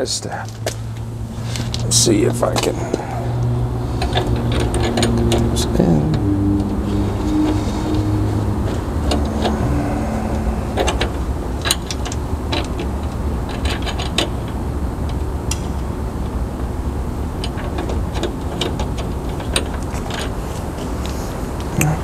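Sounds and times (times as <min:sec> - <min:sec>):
steady low rumble: 0:00.7 - 0:14.0.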